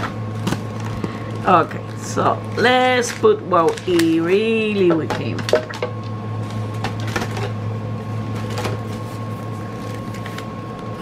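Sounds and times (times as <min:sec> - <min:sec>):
low electrical hum: 0:00.0 - 0:11.0
packaging rustling and clicking: 0:03.0 - 0:04.2.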